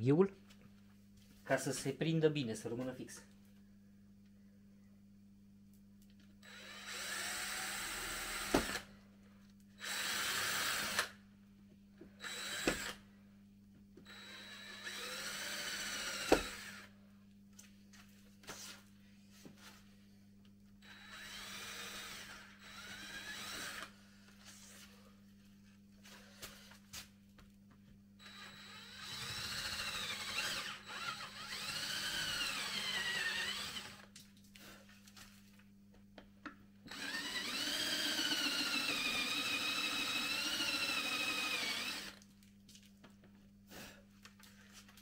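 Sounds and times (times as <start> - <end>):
electric drill whining: 6.4 - 8.9, 9.8 - 11.2, 12.2 - 13.0, 14.0 - 16.9, 20.8 - 24.0, 28.2 - 34.1, 36.9 - 42.2.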